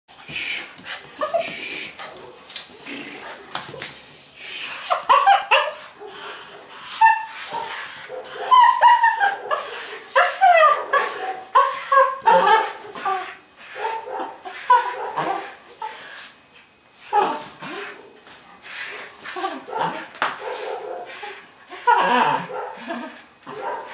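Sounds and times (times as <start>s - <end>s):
puppy yipping and whining: 0.9s - 2.7s, 3.6s - 15.0s, 15.8s - 16.3s, 17.1s - 18.0s, 18.6s - 19.2s, 21.1s - 22.4s.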